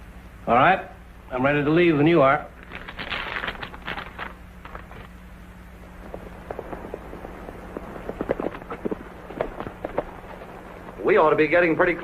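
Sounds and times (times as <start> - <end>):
soft clicks and rustles: 5.8 - 11.1
hooves clopping on dirt: 5.9 - 12.0.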